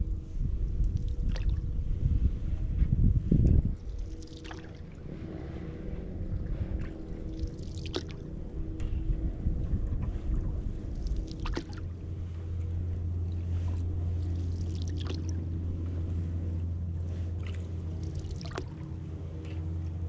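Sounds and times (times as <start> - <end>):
small boat motor humming: 0.0 - 20.0
water splashes: 0.9 - 1.7, 3.8 - 5.6, 6.6 - 8.3, 10.0 - 16.3, 17.0 - 19.4.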